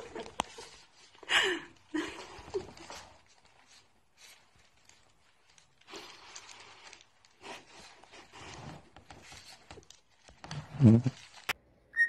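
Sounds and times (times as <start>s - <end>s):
parrot tearing paper toy: 2.0s - 11.6s.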